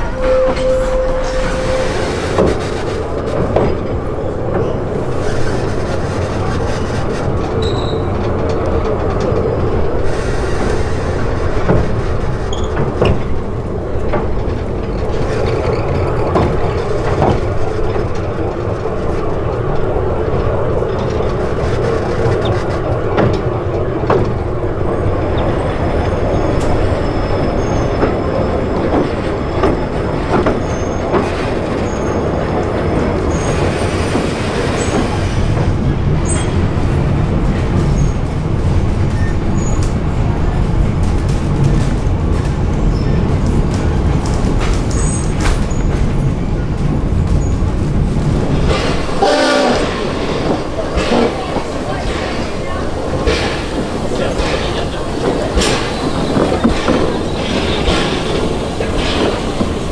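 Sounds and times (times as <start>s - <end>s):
high wheel squeals: 0.0s - 2.4s, 7.6s - 8.2s
rail joint clicks: 0.0s - 59.9s
train wheels rumbling on rails: 0.0s - 59.9s.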